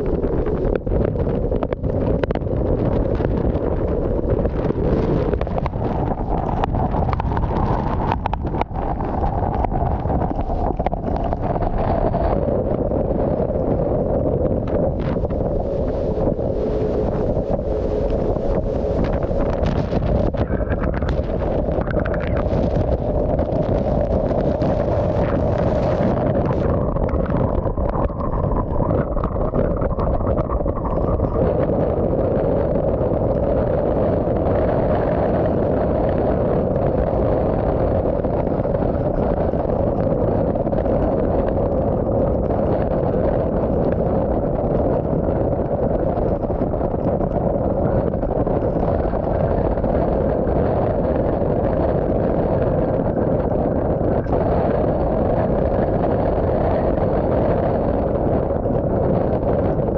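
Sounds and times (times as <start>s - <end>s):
wind and driving rain on vehicle: 0.0s - 59.9s.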